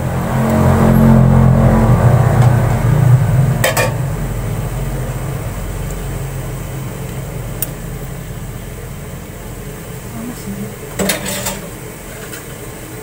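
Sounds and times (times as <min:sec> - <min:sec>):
low rumble: 0:00.0 - 0:10.7
metal utensil clinking on pot: 0:11.0 - 0:12.4.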